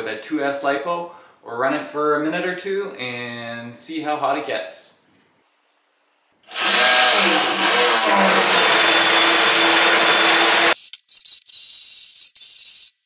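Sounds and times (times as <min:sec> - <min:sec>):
high electric motor whine: 0:06.4 - 0:10.8.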